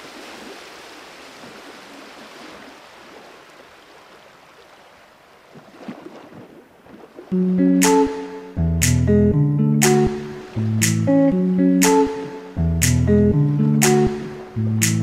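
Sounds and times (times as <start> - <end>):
wind: 0.0 - 7.6
sea surf at shore: 0.0 - 8.6, 9.8 - 15.0.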